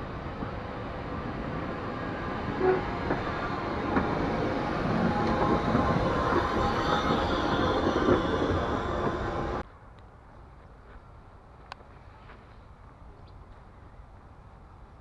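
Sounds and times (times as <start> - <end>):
train wheels rumbling on rail: 0.0 - 9.7
wheel squeal: 4.2 - 9.6.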